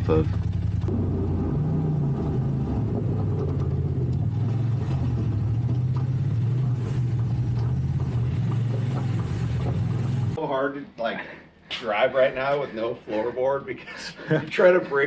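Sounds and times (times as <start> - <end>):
off-road vehicle engine running: 0.0 - 10.4.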